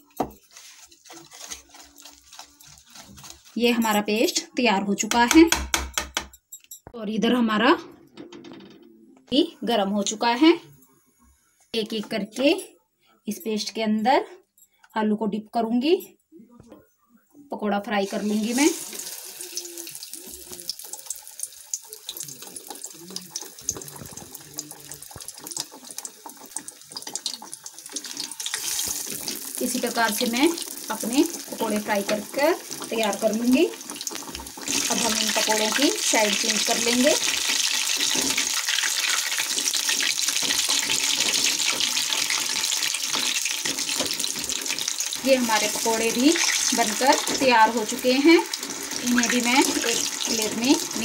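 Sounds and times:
food deep-frying in hot oil: 0.0 - 4.0, 18.0 - 51.0.

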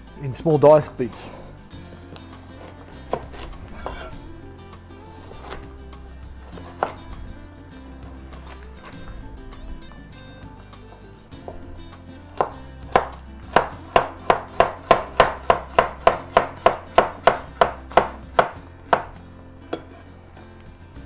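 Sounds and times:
knife chopping on board: 3.0 - 4.1, 6.6 - 7.0, 12.3 - 19.2.

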